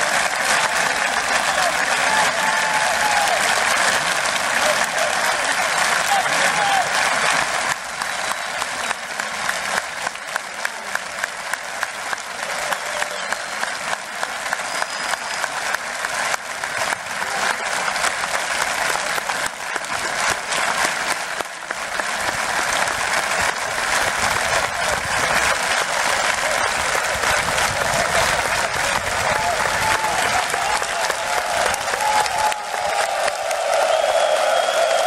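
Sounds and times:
crowd applause: 0.0s - 35.0s
stadium crowd clapping in unison: 0.0s - 35.0s.

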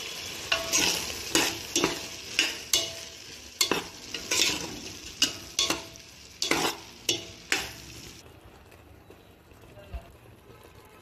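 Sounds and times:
frying sizzle: 0.0s - 11.0s
spoon clinking on pot: 0.5s - 7.8s
spoon scraping metal pot: 0.5s - 7.8s.

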